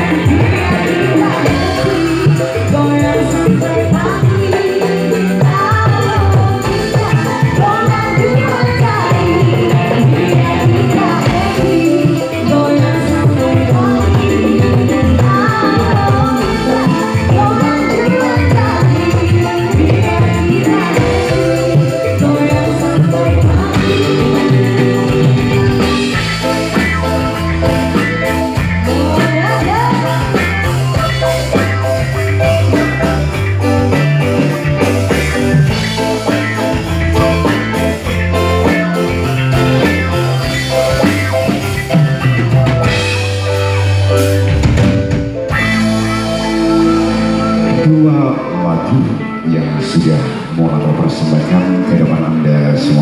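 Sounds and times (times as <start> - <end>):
woman singing: 0.0 - 26.2, 28.8 - 30.8
live band music: 0.0 - 53.0.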